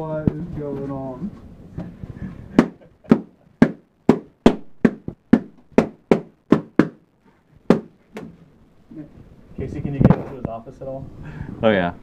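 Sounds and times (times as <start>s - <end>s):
rubber balloons tapping: 2.5s - 8.4s.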